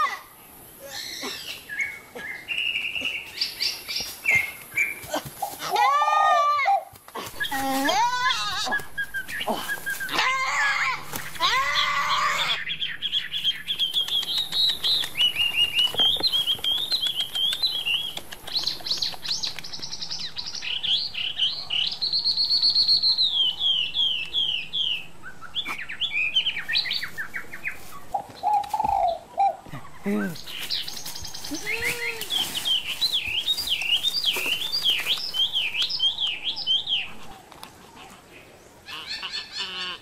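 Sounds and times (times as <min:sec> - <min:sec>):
small birds chirping: 0:00.4 - 0:05.7, 0:07.3 - 0:40.0
goat bleating: 0:07.5 - 0:08.8.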